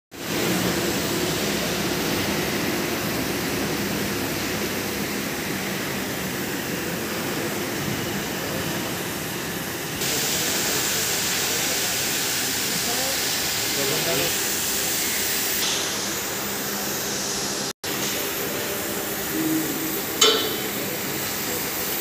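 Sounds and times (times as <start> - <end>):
gas torch hissing cutting steel: 7.7 - 22.0.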